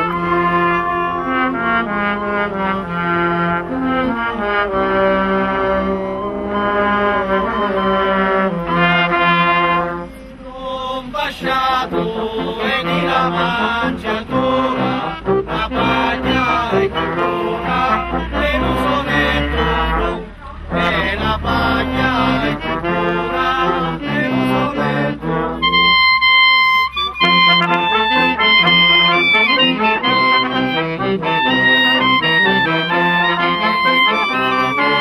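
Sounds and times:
brass street band playing: 0.0s - 35.0s
men singing together: 10.5s - 25.2s.

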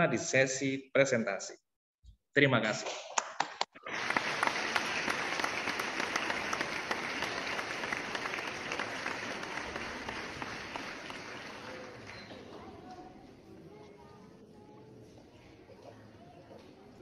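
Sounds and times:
crowd applause: 3.7s - 12.9s.

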